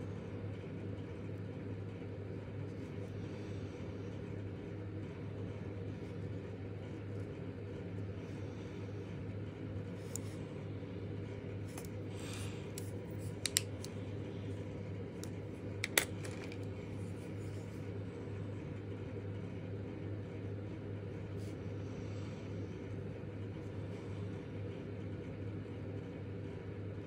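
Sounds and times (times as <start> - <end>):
steady low hum: 0.0 - 27.0
plastic pen clicks: 12.7 - 13.9, 15.2 - 16.7.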